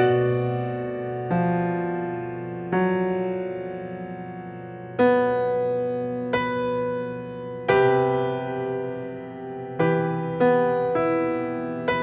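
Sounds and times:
grand piano chords: 0.0 - 12.0.

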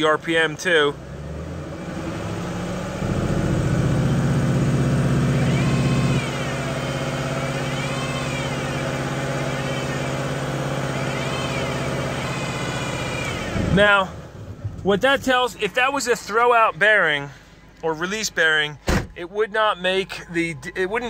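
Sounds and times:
car engine revving: 0.0 - 16.6
transmission whine: 3.4 - 21.0.

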